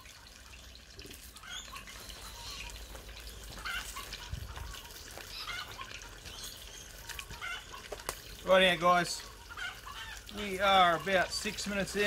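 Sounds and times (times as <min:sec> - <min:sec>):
chicken sizzling in oil: 0:00.0 - 0:12.0
bird calls: 0:01.3 - 0:08.4.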